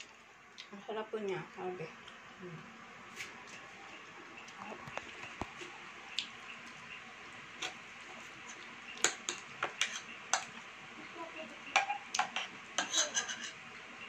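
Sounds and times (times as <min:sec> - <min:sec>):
kitchen utensils and dishes clinking: 0:11.7 - 0:13.6.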